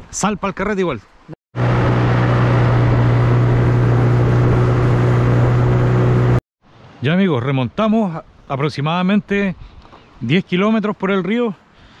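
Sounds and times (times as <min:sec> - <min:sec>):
rushing water: 0:00.1 - 0:08.8
outboard motor running: 0:01.6 - 0:06.4
rushing wind: 0:01.6 - 0:06.4.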